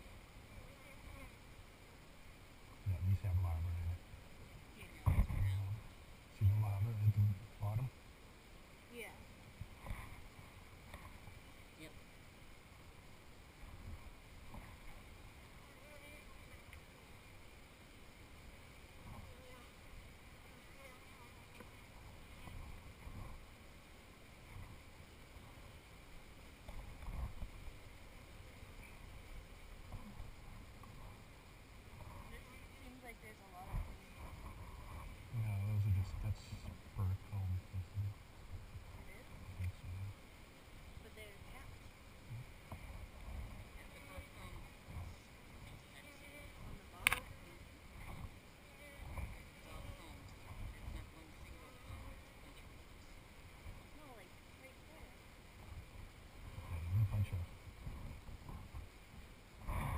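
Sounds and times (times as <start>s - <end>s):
low rumbles: 2.6s - 8.0s, 26.6s - 54.0s, 55.4s - 59.9s
faint voices: 2.8s - 4.0s, 4.7s - 7.9s, 31.9s - 40.2s, 40.9s - 55.3s, 56.4s - 58.8s
wind noise on microphone: 2.8s - 4.0s, 4.9s - 5.8s, 6.4s - 7.9s, 26.6s - 27.8s, 33.6s - 40.2s, 41.1s - 54.0s, 55.5s - 59.9s
sharp click: 47.0s - 47.3s.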